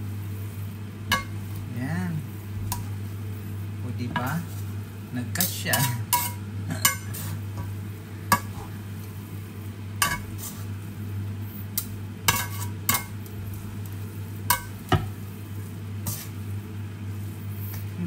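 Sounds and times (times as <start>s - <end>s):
noodles sizzling: 0.0s - 18.0s
steady low hum: 0.0s - 18.0s
tongs clacking against pan: 1.1s - 1.4s, 5.4s - 7.7s, 10.0s - 10.3s, 11.8s - 13.2s, 14.5s - 15.1s.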